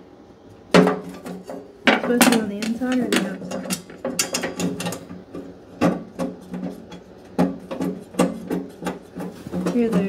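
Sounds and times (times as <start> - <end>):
hand tools clicking and scraping metal: 2.3 - 5.1.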